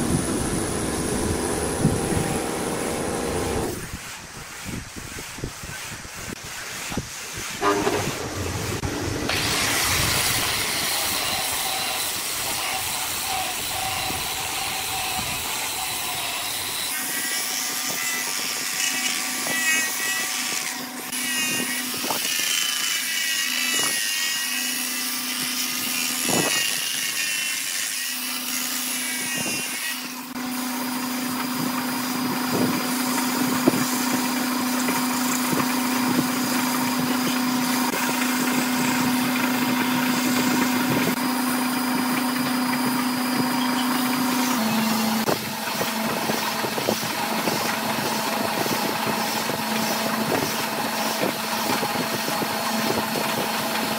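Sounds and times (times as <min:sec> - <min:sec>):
lathe humming: 0:00.0 - 0:03.8
rotary sander whining: 0:00.0 - 0:53.9.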